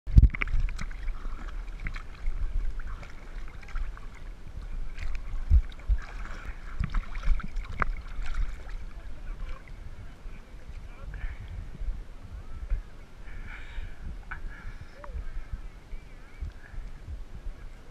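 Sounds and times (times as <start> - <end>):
water sloshing and lapping: 0.1 - 11.6
low rumble: 0.1 - 17.9.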